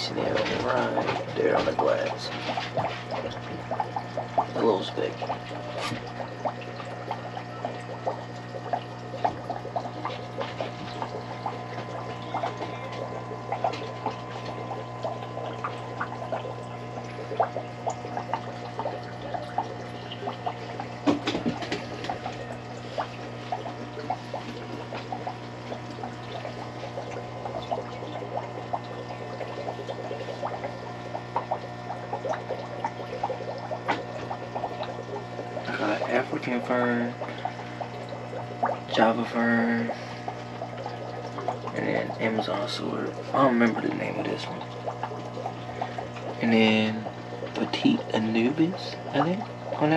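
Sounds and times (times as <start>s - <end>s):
water splashing: 0.0s - 49.9s
water trickling and bubbling: 0.0s - 49.9s.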